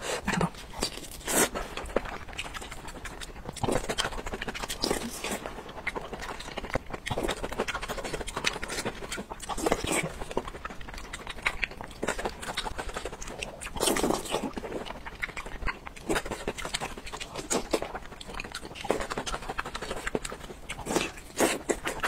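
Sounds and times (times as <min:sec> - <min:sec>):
slurping and chewing: 0:00.0 - 0:22.0
sticky squelches of tearing food: 0:00.0 - 0:22.0.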